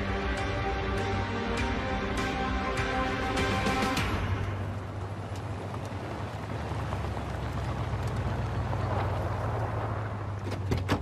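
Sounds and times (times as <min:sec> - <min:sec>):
engine rumble: 0:00.0 - 0:11.0
tyre noise on dirt: 0:04.7 - 0:11.0.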